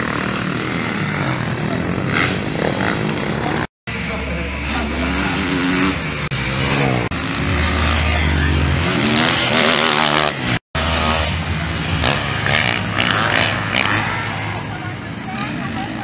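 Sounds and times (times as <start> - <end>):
motocross bike engines revving: 0.0 - 16.0.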